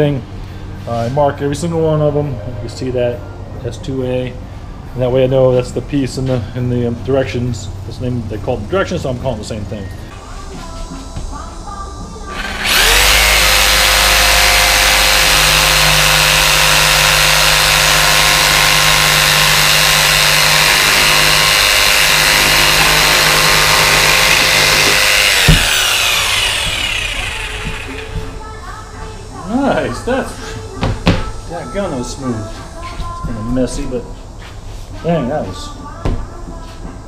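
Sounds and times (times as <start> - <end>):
jigsaw cutting plywood: 12.3 - 28.2.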